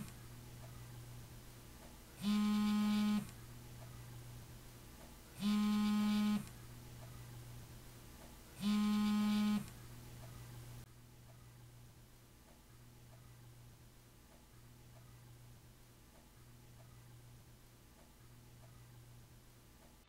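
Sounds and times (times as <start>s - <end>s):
phone buzzing: 2.2s - 3.3s, 5.4s - 6.5s, 8.6s - 9.7s.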